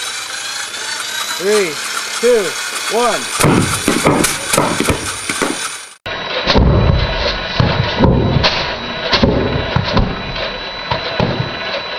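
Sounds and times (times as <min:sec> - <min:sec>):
potato gun firing shots: 0:03.3 - 0:05.8, 0:06.4 - 0:11.6.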